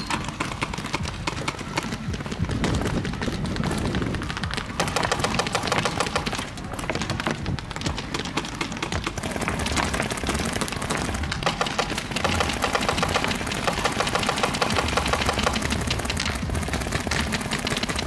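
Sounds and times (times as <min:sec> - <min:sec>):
paintball markers firing: 0:00.0 - 0:18.0.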